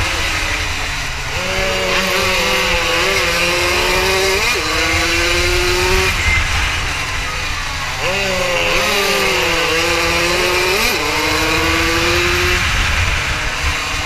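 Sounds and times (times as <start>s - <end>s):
motorcycle engine at high revs: 0.0s - 14.0s
wind rumble on microphone: 10.2s - 14.0s.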